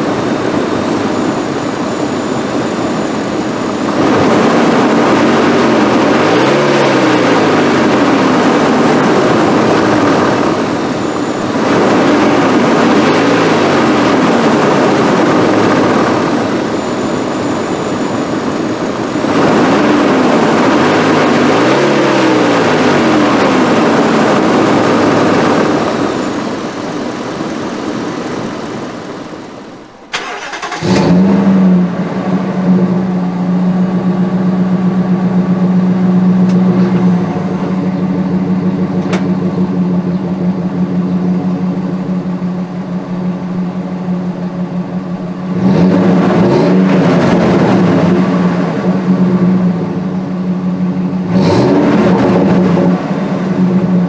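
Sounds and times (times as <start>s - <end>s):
engine starting and idling: 0.0s - 33.2s
pickup engine revving: 0.0s - 54.0s.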